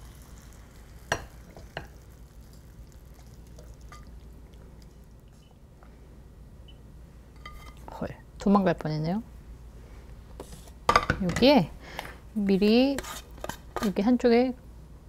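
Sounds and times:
faint low hum: 0:00.0 - 0:10.8.

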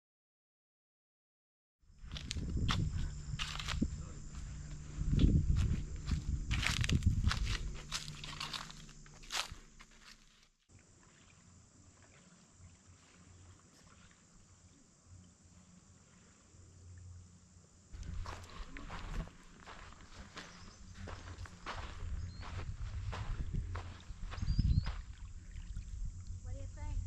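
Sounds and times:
insects buzzing: 0:01.9 - 0:27.0
footsteps crunching on dirt: 0:02.0 - 0:10.6, 0:18.0 - 0:25.2
low rumble: 0:02.1 - 0:09.2, 0:18.0 - 0:27.0.

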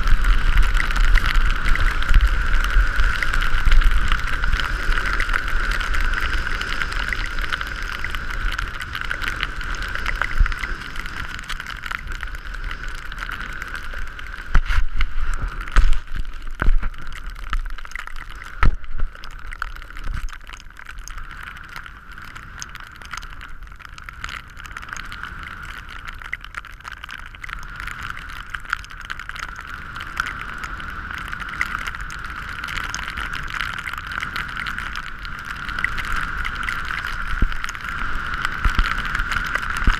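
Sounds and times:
wind rushing over microphone: 0:00.0 - 0:20.4, 0:29.6 - 0:39.9.

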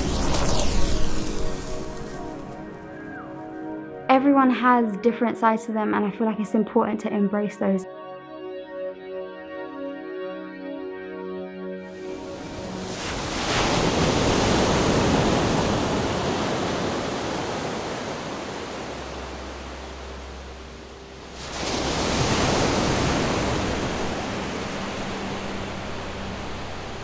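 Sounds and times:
rushing surf-like noise: 0:00.0 - 0:03.0, 0:11.9 - 0:27.0.

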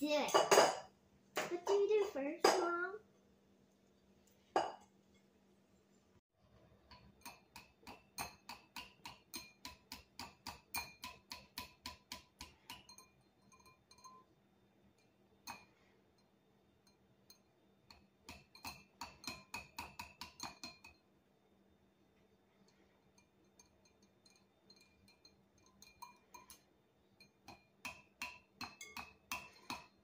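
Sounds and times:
whisk clinking against glass bowl: 0:06.9 - 0:14.4, 0:15.0 - 0:21.1, 0:22.7 - 0:30.0.

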